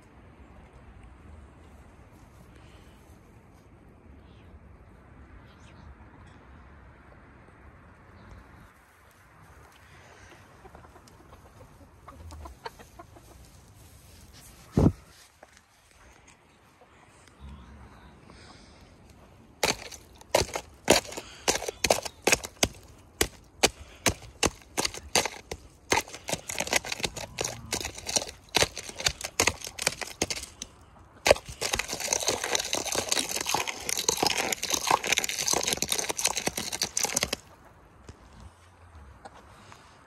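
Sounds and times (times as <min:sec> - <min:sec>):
pole knocking on ice: 0:19.6 - 0:30.6
broken ice crunching: 0:19.6 - 0:37.5.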